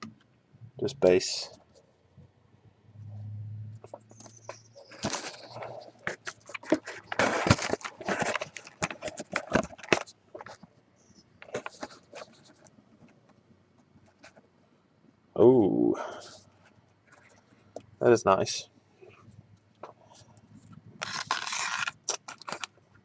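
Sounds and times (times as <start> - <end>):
trading cards and box handled: 3.8 - 14.4, 19.7 - 23.0.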